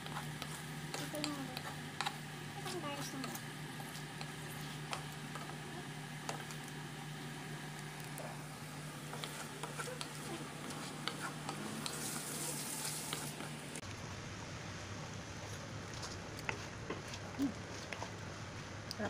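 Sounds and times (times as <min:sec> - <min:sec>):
spatula scraping pan: 0:00.0 - 0:05.6, 0:08.9 - 0:13.5
prawns sizzling in sauce: 0:00.0 - 0:13.8
steady low hum: 0:00.0 - 0:19.0.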